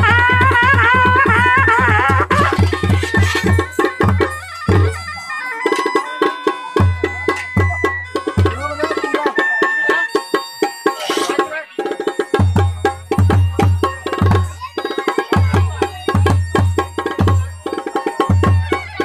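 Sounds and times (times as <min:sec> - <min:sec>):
bagpipe playing held notes: 0:00.0 - 0:11.5.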